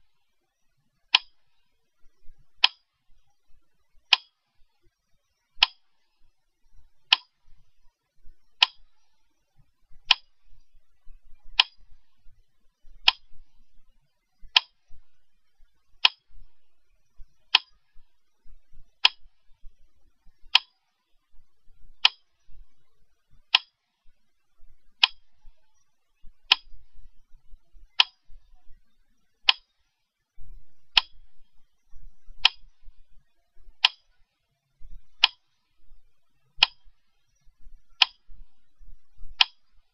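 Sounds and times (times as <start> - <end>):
sharp ticks: 1.1 - 1.7, 2.6 - 3.3, 4.0 - 6.4, 7.0 - 7.6, 8.3 - 10.7, 11.6 - 12.0, 12.9 - 13.5, 14.4 - 15.0, 15.7 - 16.5, 17.2 - 18.1, 18.9 - 19.6, 20.3 - 21.0, 22.0 - 22.8, 23.4 - 23.9, 25.0 - 25.8, 26.4 - 27.0, 27.8 - 28.6, 29.2 - 30.0, 30.9 - 31.6, 33.8 - 34.2, 35.1 - 35.6, 36.6 - 38.6, 39.3 - 39.9.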